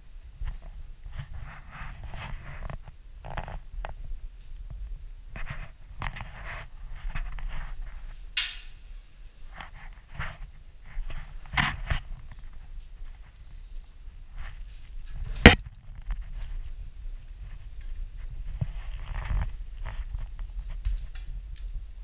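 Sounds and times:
camera handling rumble: 5.3s - 8.2s, 14.4s - 16.7s.

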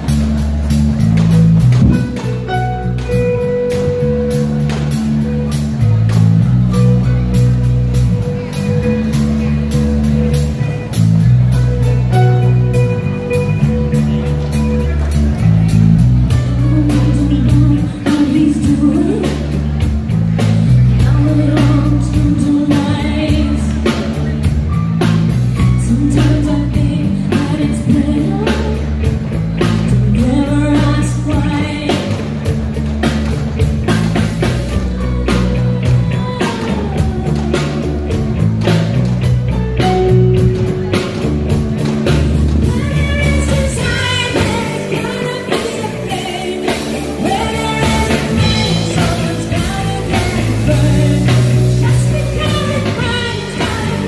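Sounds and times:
drum kit beat: 0.0s - 54.0s
electric bass: 0.0s - 54.0s
electric guitar: 0.0s - 54.0s
woman singing lead: 15.9s - 24.3s, 25.1s - 32.5s, 34.3s - 38.9s, 42.1s - 54.0s.

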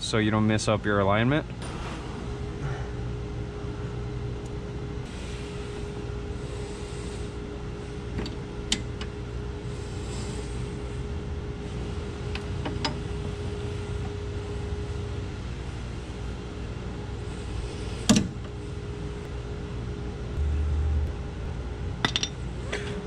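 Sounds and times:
steady low hum: 0.0s - 23.0s
short low rumble: 20.4s - 21.7s.

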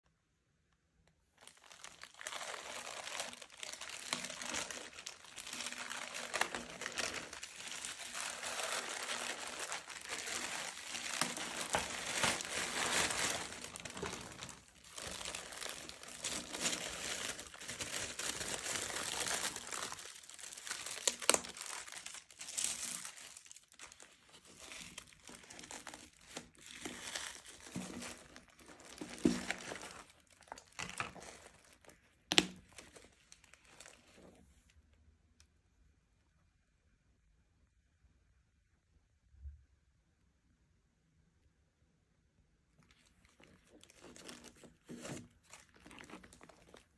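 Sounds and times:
plastic bag and tissue paper crinkling: 1.4s - 34.5s, 42.8s - 46.9s.

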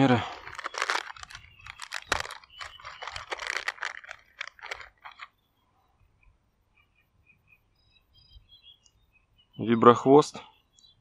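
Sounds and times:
plastic packets crinkling: 0.0s - 5.3s
faint bird chirps: 5.0s - 11.0s.

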